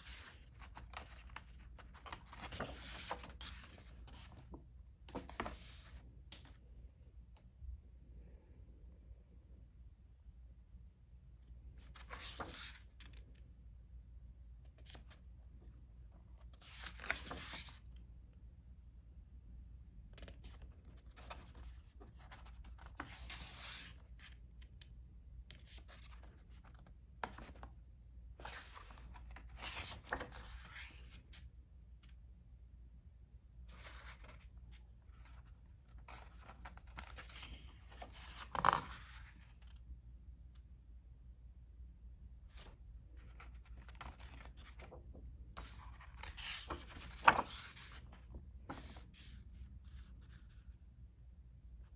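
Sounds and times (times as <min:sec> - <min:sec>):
book pages rustling: 0:00.0 - 0:06.6, 0:11.8 - 0:13.3, 0:16.4 - 0:17.8, 0:20.2 - 0:24.4, 0:28.4 - 0:31.4, 0:33.7 - 0:39.8, 0:42.5 - 0:50.7
page turn swish: 0:45.6 - 0:48.1.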